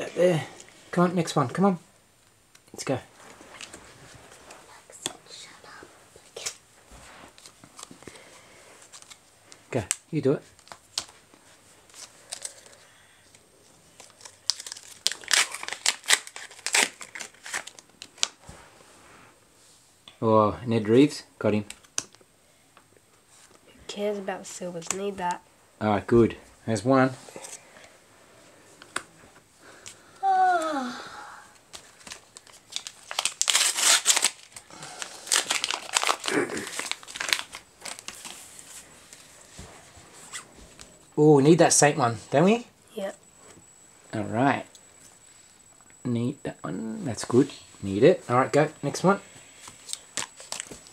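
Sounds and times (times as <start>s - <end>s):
plastic wrapper tearing and crinkling: 8.9s - 9.2s, 14.0s - 18.4s, 31.7s - 38.4s, 49.6s - 50.9s.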